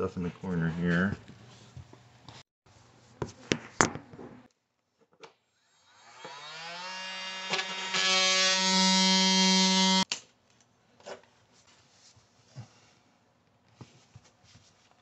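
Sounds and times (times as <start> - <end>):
oscillating multi-tool buzzing: 5.6 - 10.0.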